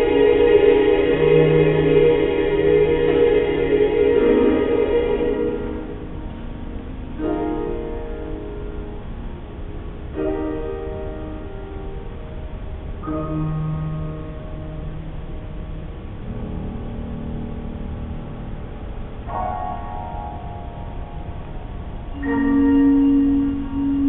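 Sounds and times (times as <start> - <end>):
choir singing sustained chords: 0.0 - 24.0.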